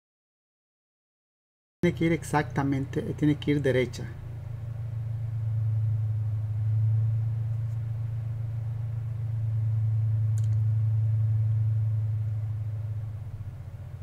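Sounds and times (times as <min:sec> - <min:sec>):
steady low hum: 0:01.8 - 0:14.0
light click: 0:10.4 - 0:10.7.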